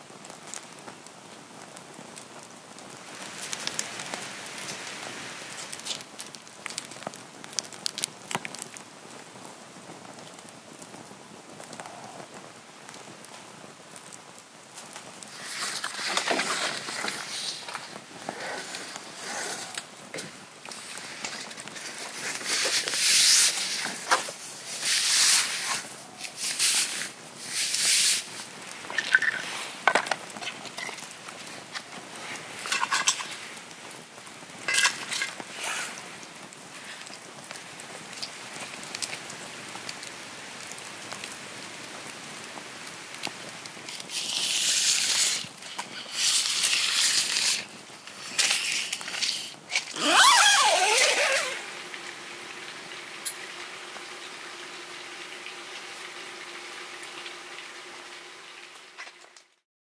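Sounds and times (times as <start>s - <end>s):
wood fire crackling: 0.0s - 59.6s
rustling: 1.7s - 40.2s, 42.9s - 52.3s.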